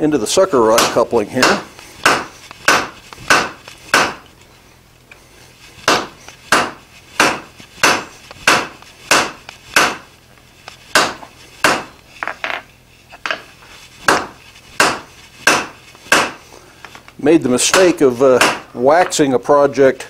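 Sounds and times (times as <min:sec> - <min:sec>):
hammer striking hot metal on anvil: 0:00.7 - 0:04.2, 0:05.9 - 0:10.0, 0:11.0 - 0:11.9, 0:14.1 - 0:16.4.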